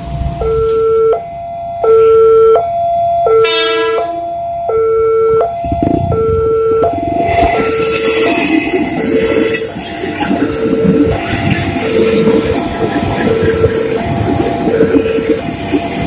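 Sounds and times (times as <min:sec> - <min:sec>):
two-tone crossing alarm: 0:00.2 - 0:16.0
short horn blast: 0:03.4 - 0:04.3.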